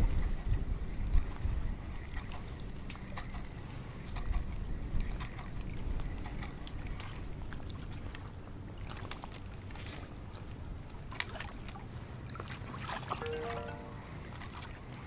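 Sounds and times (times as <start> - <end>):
wind noise on microphone: 0.0 - 7.4.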